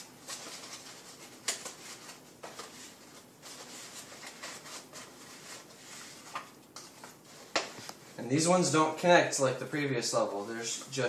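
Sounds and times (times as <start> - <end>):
paper rustling and crinkling: 0.0 - 8.0.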